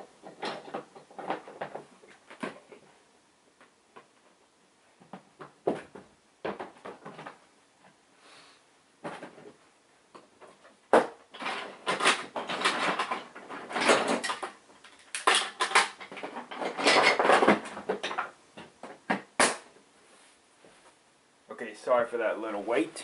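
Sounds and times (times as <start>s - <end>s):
objects clattering and rustling: 0.0s - 3.0s, 3.6s - 8.0s, 9.0s - 19.9s.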